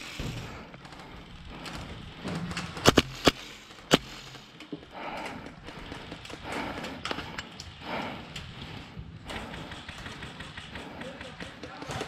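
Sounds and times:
airsoft gun shots: 2.8s - 4.2s.

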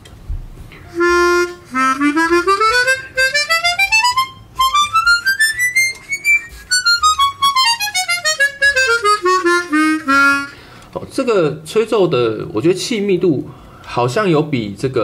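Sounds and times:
chromatic harmonica playing: 0.9s - 10.7s.

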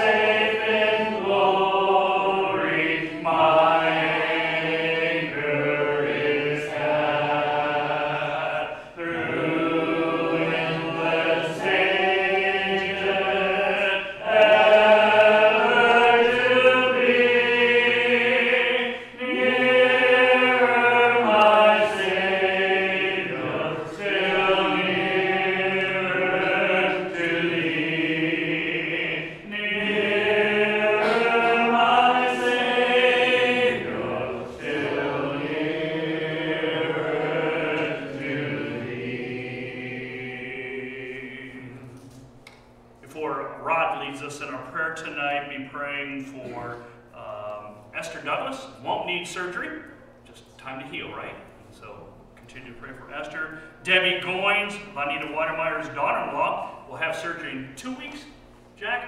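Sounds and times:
congregation singing a hymn: 0.0s - 42.3s.

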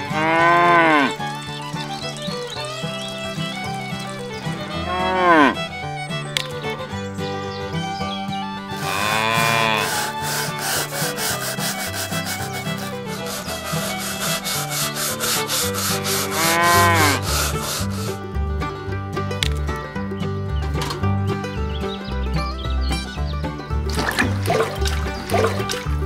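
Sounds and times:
cow mooing: 0.0s - 1.2s, 4.7s - 5.6s, 8.8s - 10.2s, 16.1s - 17.6s
background music with bass line: 0.0s - 26.0s
toothbrush scrubbing plastic toy: 9.8s - 16.5s, 17.2s - 18.2s.

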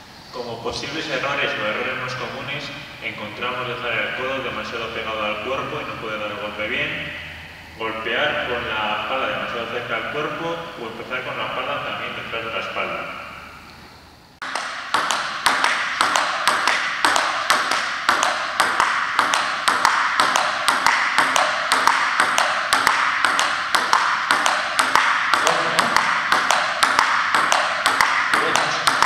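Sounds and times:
table tennis ball ticking: 14.4s - 29.0s.

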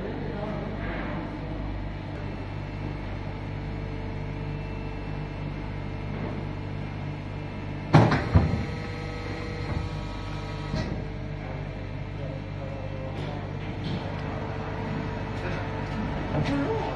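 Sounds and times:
press machine humming: 1.9s - 16.9s.

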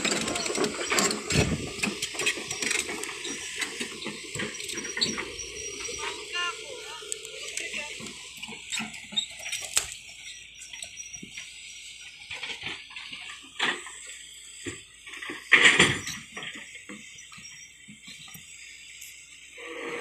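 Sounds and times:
excavator knocks and clanks: 0.0s - 6.3s, 12.1s - 18.3s.

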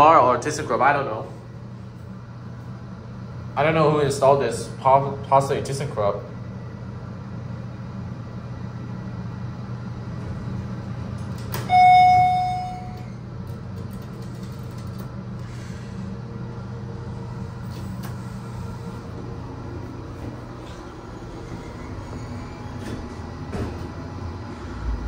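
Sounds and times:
elevator hum: 0.0s - 25.0s
electronic chime: 11.7s - 13.1s.

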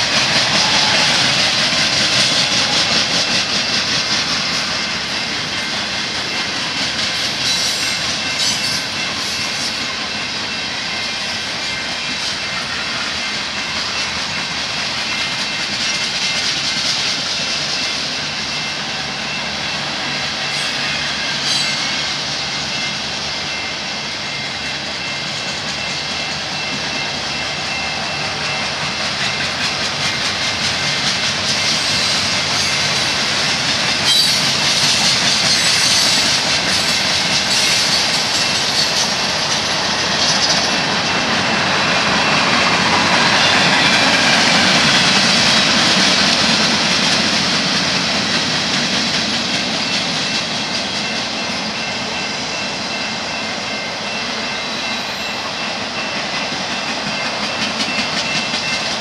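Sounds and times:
train wheels rolling on rails: 0.0s - 59.0s.

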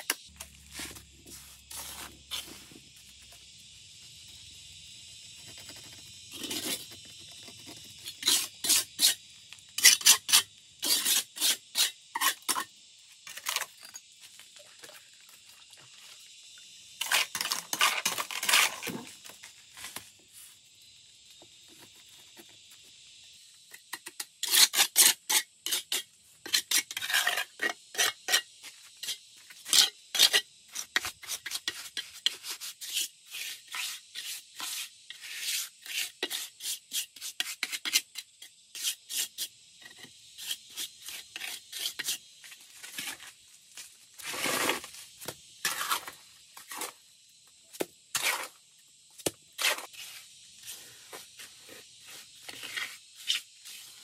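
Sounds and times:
hand tool scraping hard material: 0.1s - 2.9s, 5.5s - 9.2s, 9.8s - 12.7s, 17.0s - 19.1s, 24.1s - 43.3s, 44.2s - 45.0s, 45.6s - 47.0s, 48.1s - 48.6s, 49.6s - 54.0s.

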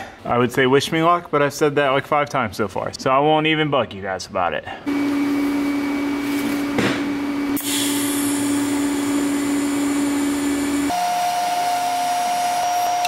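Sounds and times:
handheld power tool running: 7.5s - 13.0s.

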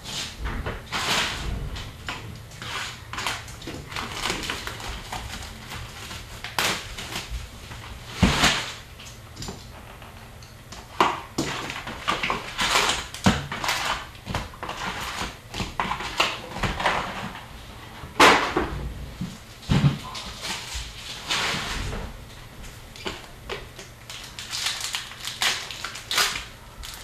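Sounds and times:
cardboard and cards rustling: 0.1s - 17.5s, 19.1s - 27.0s
card pack wrappers crinkling: 2.6s - 9.1s, 22.9s - 27.0s.

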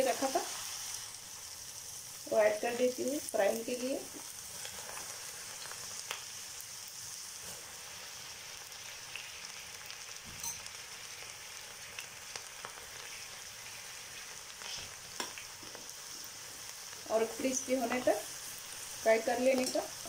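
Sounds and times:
deep-frying sizzle: 0.0s - 20.0s
oil popping and crackling: 3.9s - 6.7s, 8.6s - 18.2s.

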